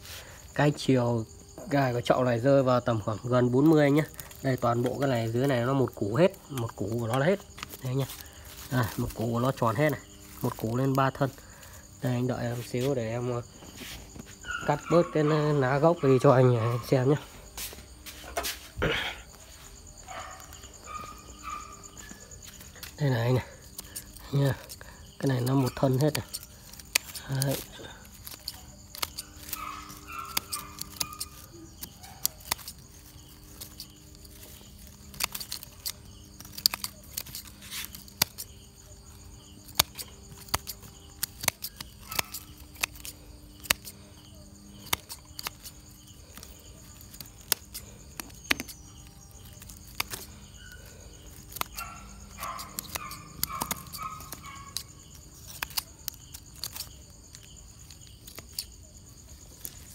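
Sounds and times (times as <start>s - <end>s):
pruning scissors snipping: 23.7s - 58.8s.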